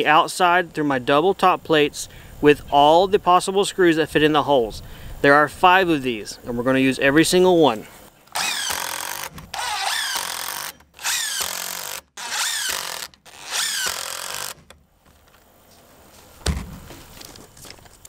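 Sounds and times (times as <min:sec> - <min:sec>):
impact driver driving screws: 0:08.3 - 0:14.8.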